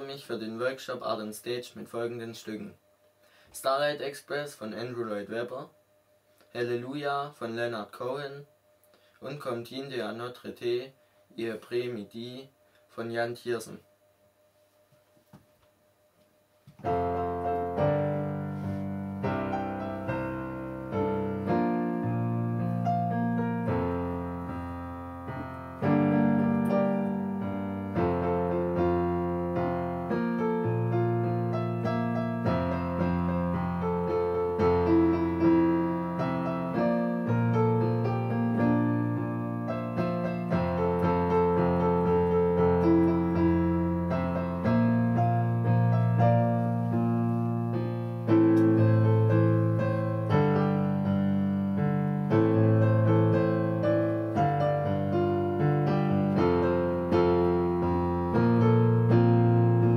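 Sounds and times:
slow solo piano piece: 0:16.8 - 0:59.9.

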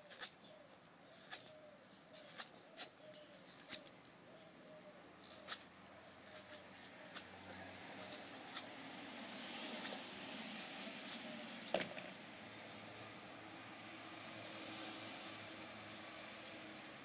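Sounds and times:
knife slicing rubber: 0:00.0 - 0:00.4, 0:01.2 - 0:01.6, 0:02.2 - 0:03.9, 0:05.2 - 0:07.3, 0:07.9 - 0:08.7.

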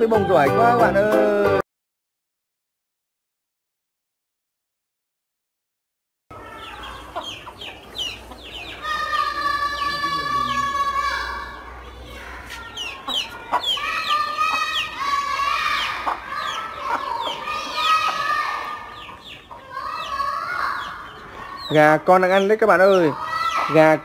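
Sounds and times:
chicks peeping: 0:06.3 - 0:24.0
hen clucking: 0:06.4 - 0:10.8, 0:12.6 - 0:15.0, 0:15.8 - 0:23.9.

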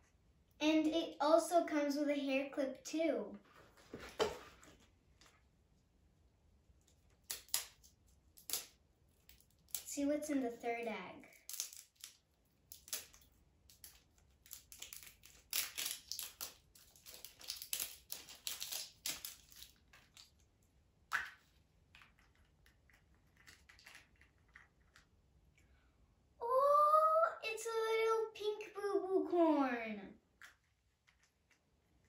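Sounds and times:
plastic toy egg crinkling and clicking: 0:06.9 - 0:09.9, 0:11.3 - 0:20.5, 0:22.0 - 0:25.1.

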